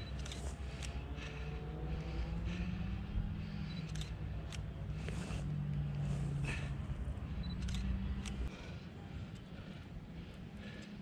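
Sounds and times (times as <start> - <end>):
sharp clicks: 0.0 - 1.0, 3.7 - 4.7, 7.4 - 8.5
low hum: 0.0 - 11.0.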